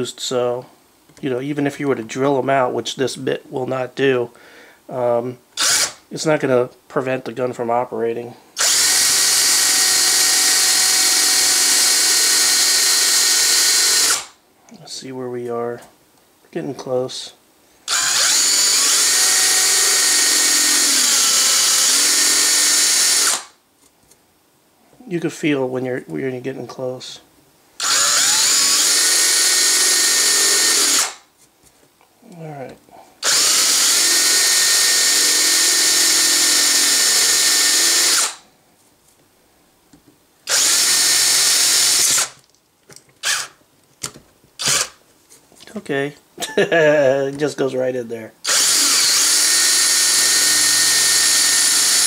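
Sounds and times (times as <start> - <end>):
electric drill drilling into steel: 5.6 - 6.0, 8.6 - 14.3, 17.9 - 23.6, 27.8 - 31.2, 33.2 - 38.4, 40.5 - 42.4, 43.2 - 43.6, 44.6 - 45.0, 48.4 - 52.0.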